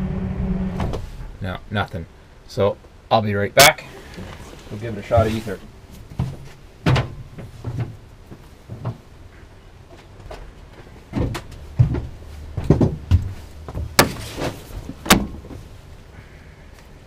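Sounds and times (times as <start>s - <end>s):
clunks and knocks in bus cab: 6.1s - 8.0s, 11.1s - 15.6s.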